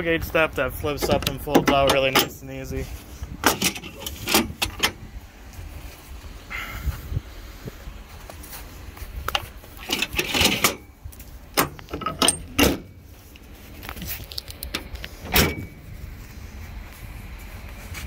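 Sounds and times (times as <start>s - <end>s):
loud metal clank: 15.3s - 15.8s.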